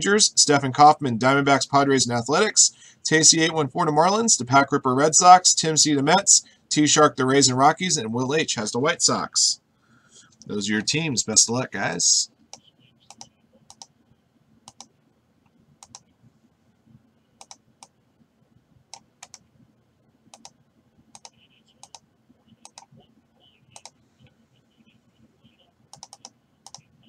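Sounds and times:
faint computer clicking: 12.4 - 14.0, 14.6 - 16.2, 17.4 - 18.0, 18.9 - 19.5, 20.2 - 27.0.

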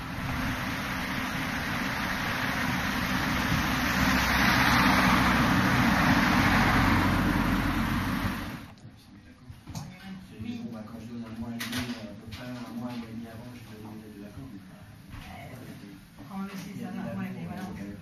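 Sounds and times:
vehicle engine running: 0.0 - 8.7
road noise: 0.0 - 8.8.

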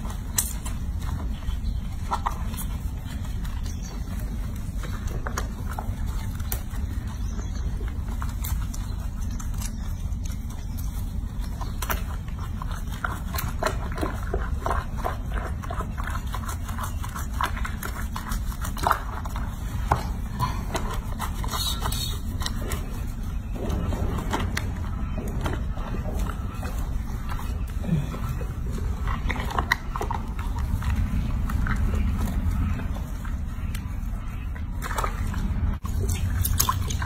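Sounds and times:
low background rumble: 0.0 - 37.0
wet squelching of lather: 26.6 - 37.0.

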